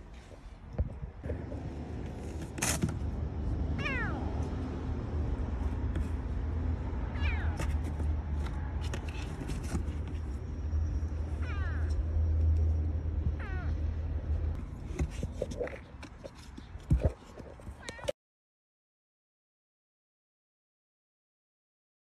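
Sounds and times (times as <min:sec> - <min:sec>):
kitten meowing: 0:03.8 - 0:04.2, 0:07.1 - 0:07.6, 0:13.4 - 0:13.8.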